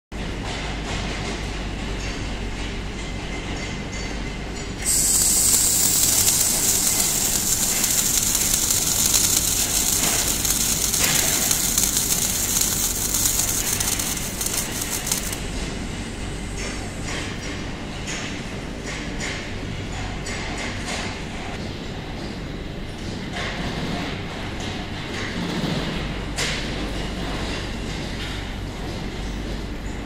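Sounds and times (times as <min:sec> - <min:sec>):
welding sizzling hiss: 0:04.8 - 0:15.5.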